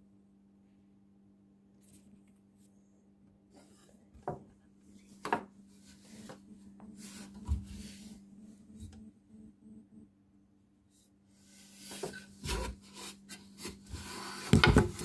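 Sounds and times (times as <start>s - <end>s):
steady low hum: 0.0s - 14.1s
rubbing and scraping handling noise: 3.5s - 9.0s, 10.9s - 15.0s.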